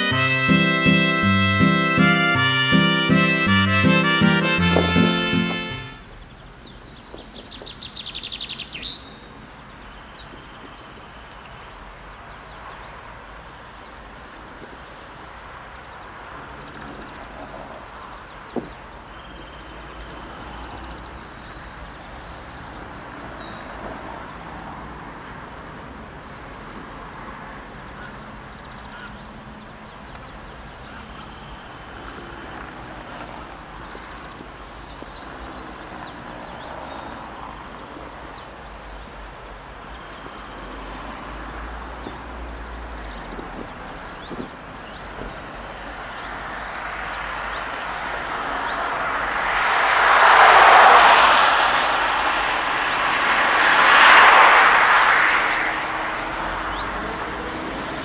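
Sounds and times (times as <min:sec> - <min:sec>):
cars passing close by: 0:00.0 - 0:06.3, 0:19.6 - 0:25.9, 0:31.8 - 0:58.0
steady traffic hum: 0:00.0 - 0:58.0
small birds chirping: 0:41.6 - 0:49.4.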